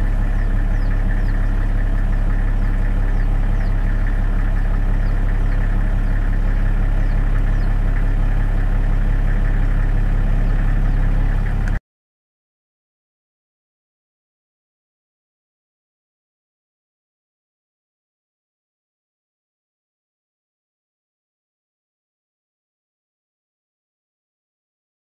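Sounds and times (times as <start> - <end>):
engine idling drone: 0.0 - 11.8.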